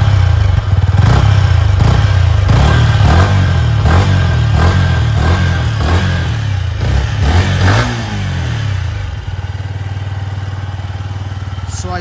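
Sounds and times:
motorcycle engine revving and idling: 0:00.0 - 0:12.0.

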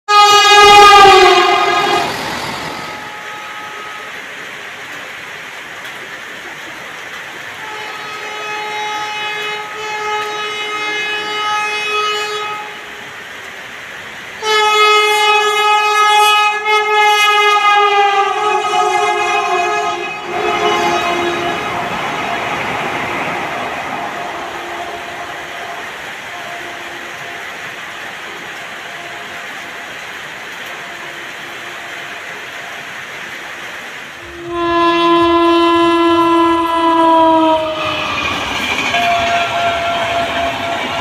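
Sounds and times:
train horn blasts: 0:00.1 - 0:04.5, 0:07.5 - 0:13.2, 0:14.4 - 0:33.0, 0:34.1 - 0:41.0
steady rushing noise: 0:20.2 - 0:35.4.

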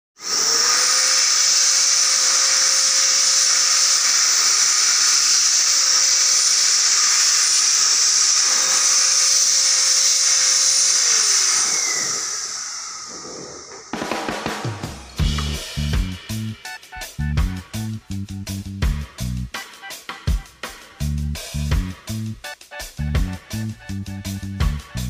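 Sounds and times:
die grinder whining: 0:00.2 - 0:16.2.

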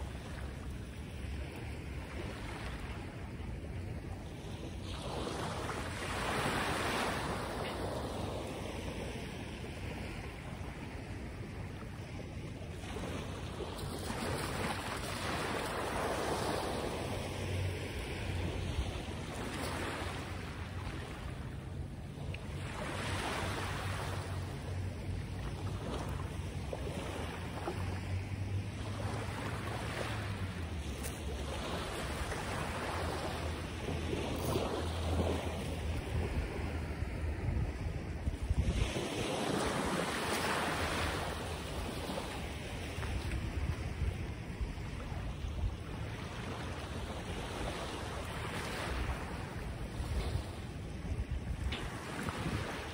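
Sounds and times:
wind rushing over microphone: 0:33.4 - 0:40.1.

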